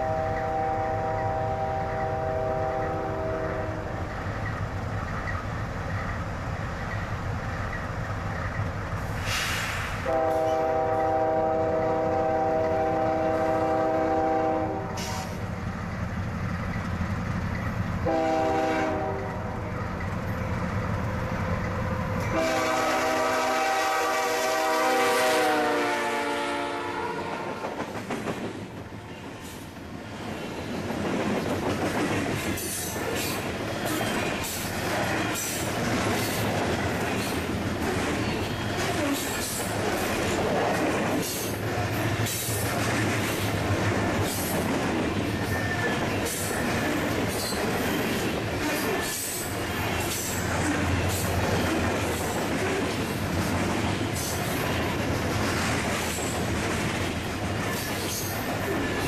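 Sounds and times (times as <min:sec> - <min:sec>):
locomotive air horn blasts: 0:00.0 - 0:03.8, 0:10.0 - 0:15.4, 0:18.0 - 0:19.6, 0:22.2 - 0:27.6
locomotive engines rumbling: 0:00.0 - 0:59.0.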